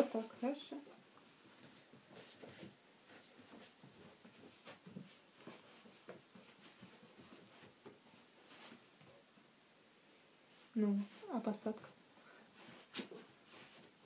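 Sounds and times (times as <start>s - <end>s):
faint small taps and rustles: 0.0s - 9.5s.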